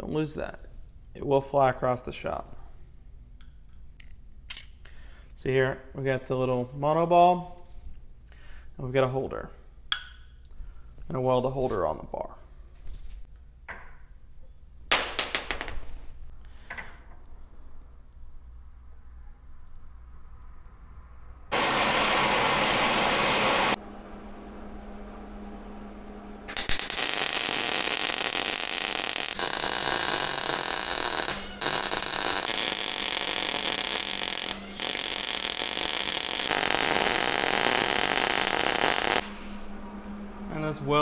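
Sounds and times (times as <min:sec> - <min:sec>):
welder arc crackling: 0:26.5 - 0:39.4.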